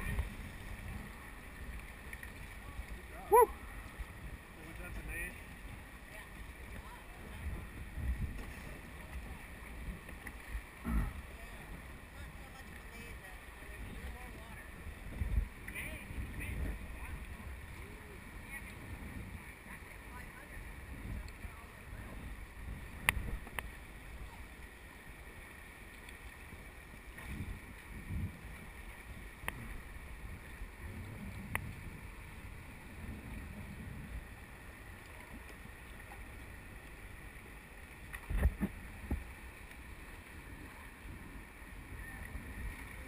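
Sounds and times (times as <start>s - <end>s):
river water rushing: 0.0s - 6.8s
wind rumble on microphone: 0.0s - 43.0s.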